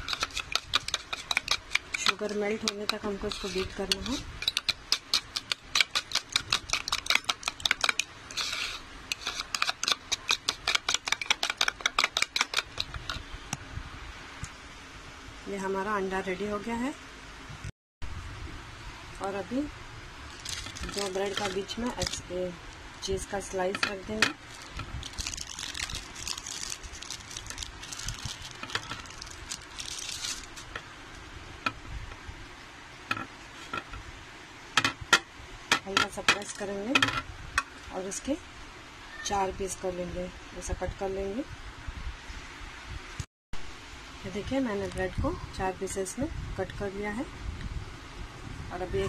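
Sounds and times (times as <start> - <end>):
plastic film crinkling: 20.3 - 22.3, 24.4 - 30.8.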